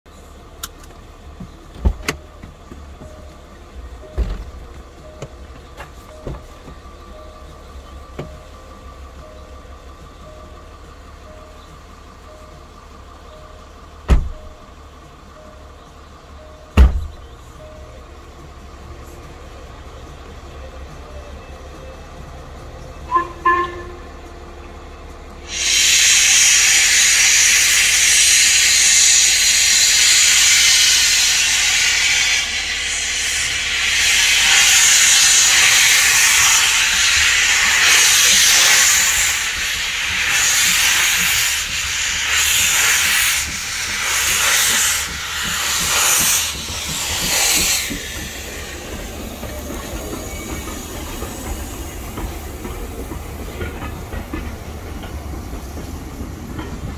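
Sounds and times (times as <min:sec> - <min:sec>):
locomotive rumble: 0:00.1 - 0:56.9
steam whistle toots: 0:23.1 - 0:24.2, 0:25.4 - 0:51.0
loud hiss of steam: 0:25.4 - 0:56.9.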